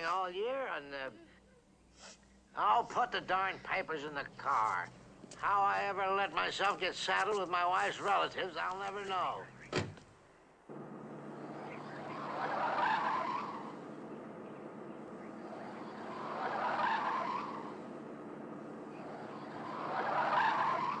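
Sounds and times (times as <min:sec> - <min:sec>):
car engine running: 0:10.6 - 0:21.0
tyres squealing: 0:10.7 - 0:21.0.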